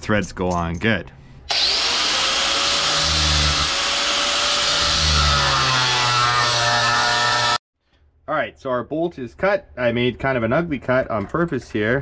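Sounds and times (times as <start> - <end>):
angle grinder cutting metal: 1.5 - 7.6.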